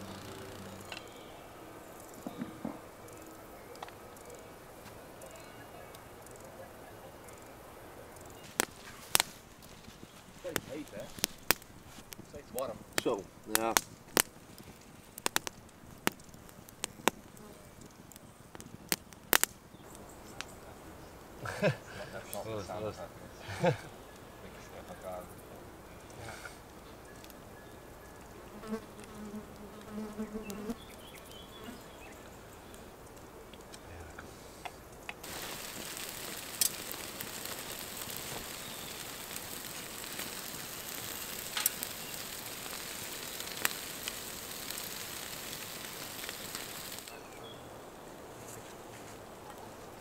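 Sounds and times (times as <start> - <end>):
food sizzling on grill: 0.0 - 1.0, 35.2 - 47.5
fire crackling pops: 0.0 - 50.0.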